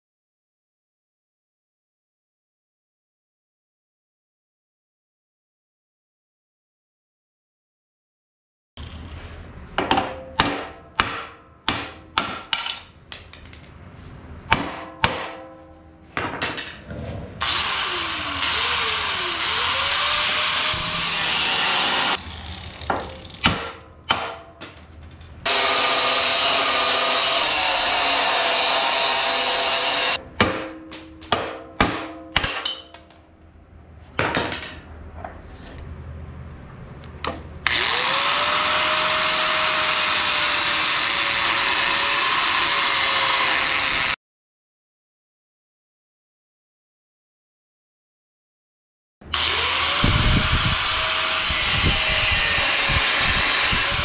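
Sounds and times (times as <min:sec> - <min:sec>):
ringing metallic knocks: 0:09.8 - 0:12.8, 0:14.4 - 0:16.8, 0:30.4 - 0:33.2
angle grinder grinding metal: 0:17.4 - 0:23.5, 0:25.4 - 0:30.2, 0:37.6 - 0:44.2, 0:49.3 - 0:54.0.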